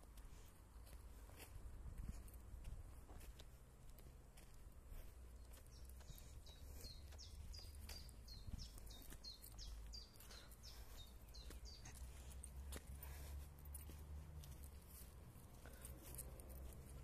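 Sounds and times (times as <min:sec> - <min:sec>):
small songbird calling: 0:05.6 - 0:12.4.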